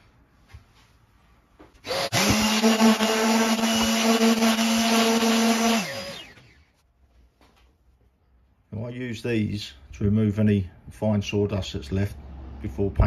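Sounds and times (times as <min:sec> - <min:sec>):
orbital sander running: 0:01.8 - 0:06.7
sander winding down: 0:01.8 - 0:06.7.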